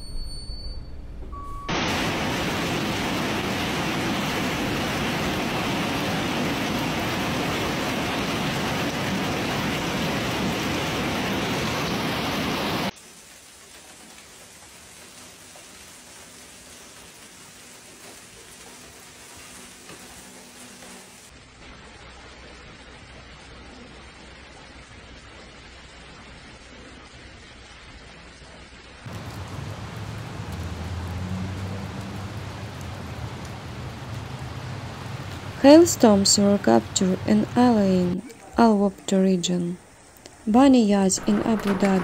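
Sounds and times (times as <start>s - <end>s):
heavy rain and hail: 1.7s - 38.8s, 39.9s - 42.0s
faint steady hiss: 29.0s - 41.4s.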